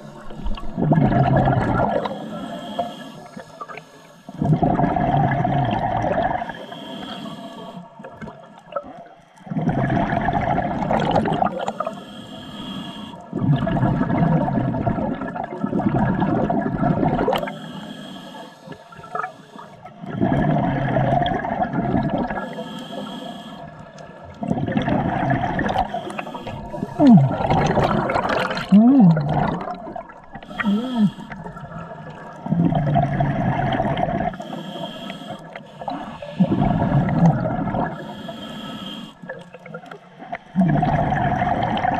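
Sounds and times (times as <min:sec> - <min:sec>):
exhaled bubbles rushing: 0:00.0 - 0:02.1, 0:04.4 - 0:06.5, 0:09.5 - 0:11.8, 0:13.3 - 0:17.5, 0:20.0 - 0:22.4, 0:24.3 - 0:34.4, 0:35.9 - 0:38.0, 0:39.3 - 0:41.9
breathing through a regulator: 0:00.0 - 0:08.1, 0:09.2 - 0:14.3, 0:17.2 - 0:41.9.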